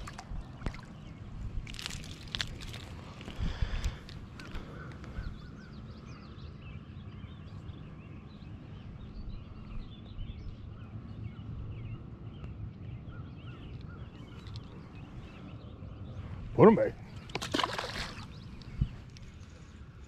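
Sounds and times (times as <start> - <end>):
birds singing and chirping: 0.0 - 20.0.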